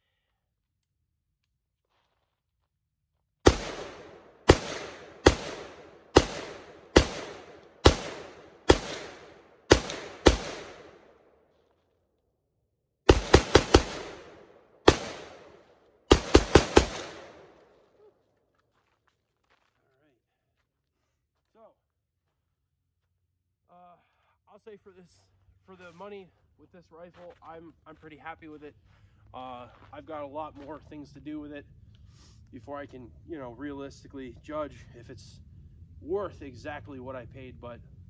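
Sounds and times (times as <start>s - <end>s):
rifle shots with echo: 3.4s - 11.4s, 13.1s - 17.8s.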